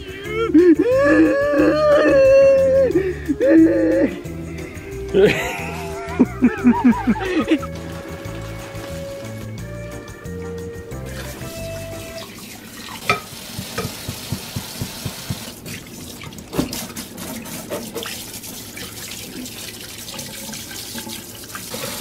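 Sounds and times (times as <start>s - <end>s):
sink sprayer running water: 3.8s - 22.0s
hands scrubbing wet fur: 5.2s - 10.1s, 10.9s - 21.8s.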